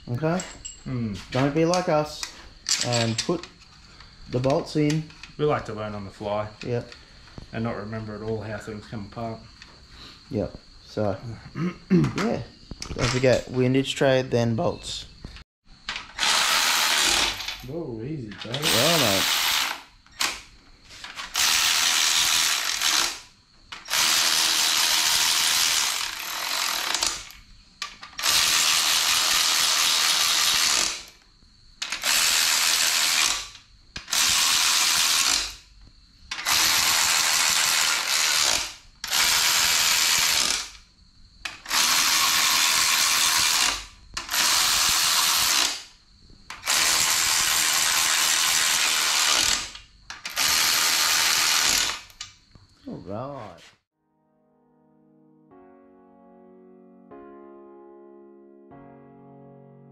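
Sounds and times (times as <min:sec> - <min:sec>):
ratchet wrench spinning bolts: 0:18.4 - 0:20.3, 0:21.2 - 0:31.1, 0:31.8 - 0:35.6, 0:36.3 - 0:40.8, 0:41.5 - 0:45.8, 0:46.5 - 0:52.2.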